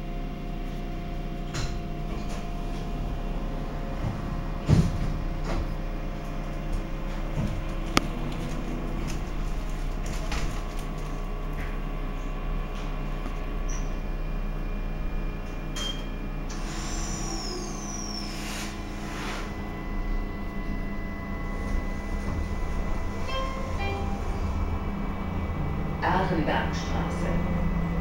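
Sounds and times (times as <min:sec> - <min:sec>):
electrical hum: 0:00.0 - 0:28.0
falling whistle: 0:16.8 - 0:18.8.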